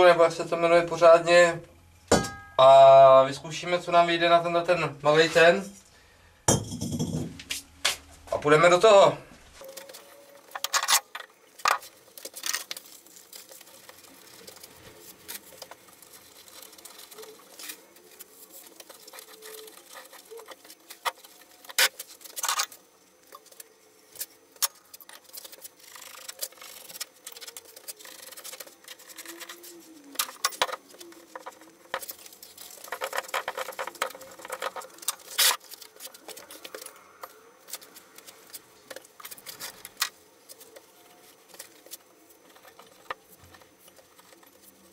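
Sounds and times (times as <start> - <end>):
scratching and rustling: 9.5 - 44.9.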